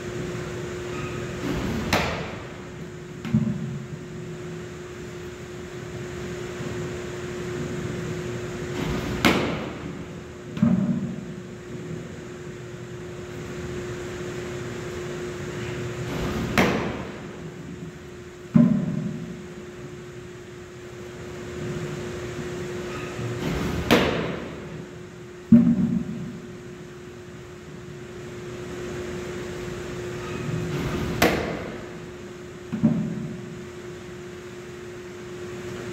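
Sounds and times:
steady low hum: 0.0s - 35.9s
baseball smacking into mitt: 9.0s - 9.8s, 16.3s - 17.2s, 31.2s - 31.8s.

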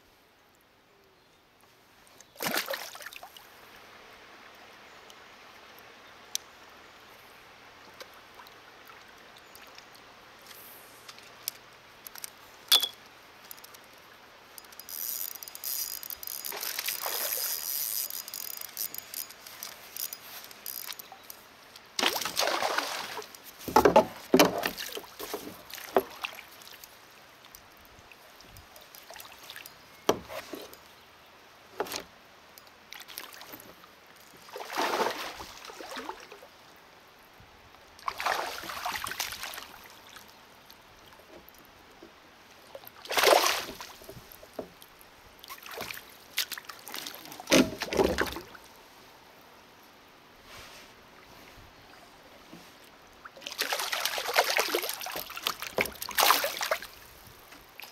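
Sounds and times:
paddle splashing in water: 22.0s - 26.8s, 34.4s - 36.3s, 38.0s - 40.2s, 42.8s - 44.8s, 45.4s - 48.6s, 52.6s - 57.1s.

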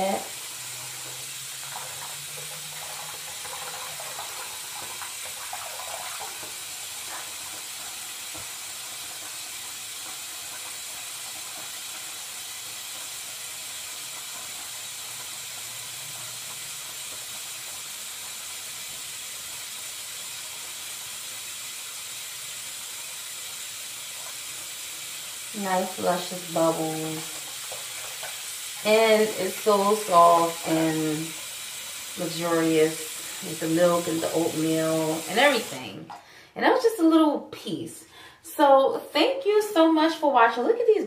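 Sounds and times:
water splashing: 0.0s - 15.5s
water running from a tap: 0.0s - 36.4s.

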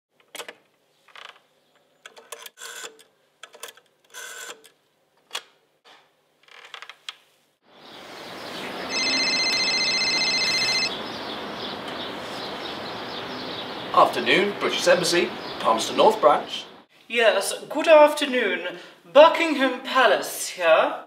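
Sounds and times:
outdoor background noise: 0.1s - 21.0s
telephone ringing with trilling tone: 8.9s - 11.0s.

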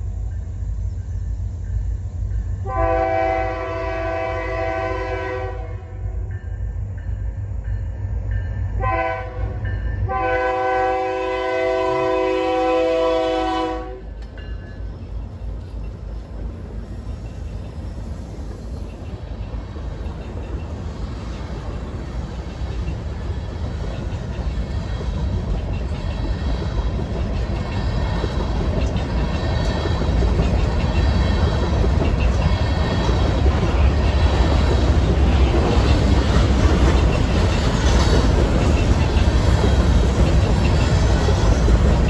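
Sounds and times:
train rumbling past: 0.0s - 42.0s
locomotive air horn blasts: 2.6s - 6.0s, 8.8s - 14.1s
wheels clattering on rail: 6.3s - 42.0s.

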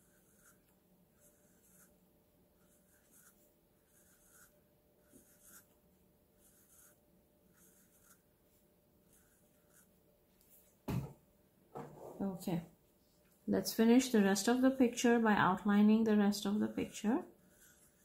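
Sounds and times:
marker scratching on paper: 0.0s - 2.0s, 2.6s - 5.8s, 6.4s - 8.2s, 9.0s - 9.9s, 16.6s - 18.0s.

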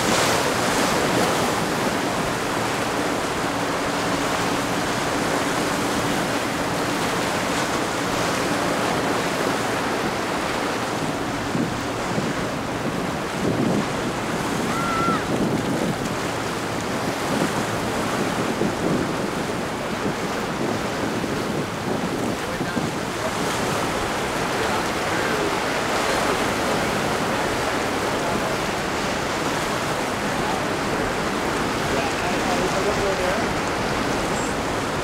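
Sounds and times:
waves breaking: 0.0s - 35.0s
wind buffeting microphone: 0.0s - 35.0s.

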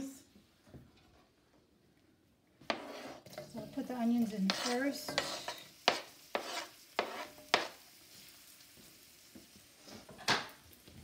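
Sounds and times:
onion sizzling in hot oil: 2.6s - 11.0s.

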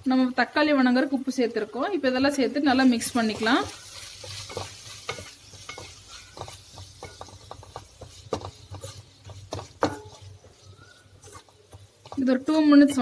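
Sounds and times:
soft sizzle of frying: 0.0s - 13.0s
spatula scraping a pan: 2.7s - 13.0s
spatula knocking against pan: 4.4s - 12.3s.

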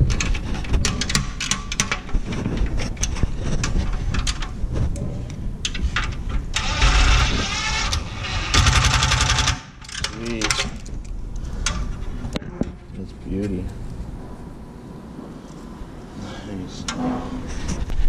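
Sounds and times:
impact driver rattling: 6.6s - 10.9s.

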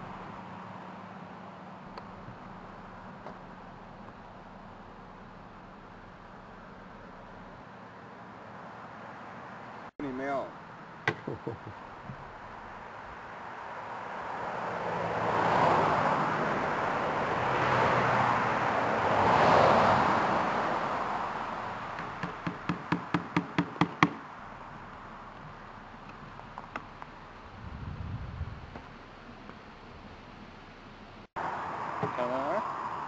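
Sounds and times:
sharp knocks: 22.0s - 24.2s.

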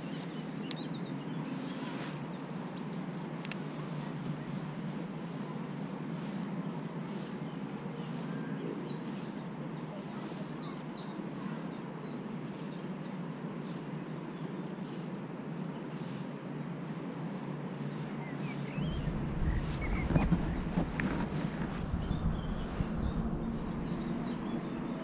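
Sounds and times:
faint bird chirps: 7.3s - 15.1s, 17.9s - 25.0s
low rumble on microphone: 18.6s - 25.0s.

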